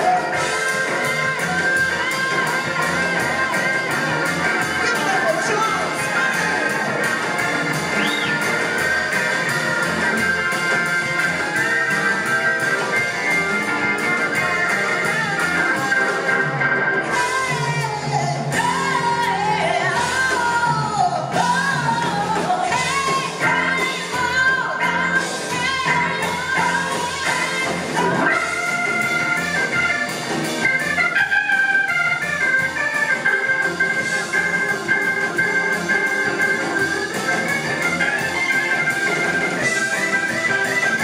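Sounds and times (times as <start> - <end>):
woman singing lead vocals: 0.0 - 6.8, 14.3 - 16.4, 17.1 - 29.1
rock band playing: 0.0 - 41.0.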